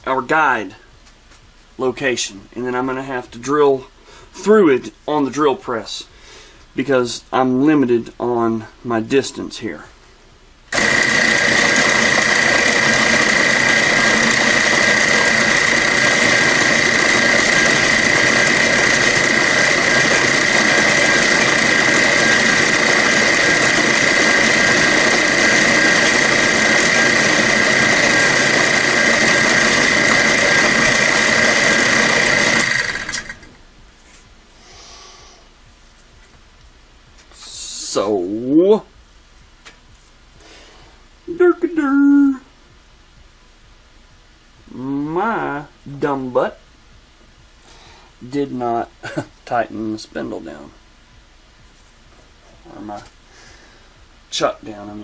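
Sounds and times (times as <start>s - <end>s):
milling machine spindle whine: 10.7s - 33.6s.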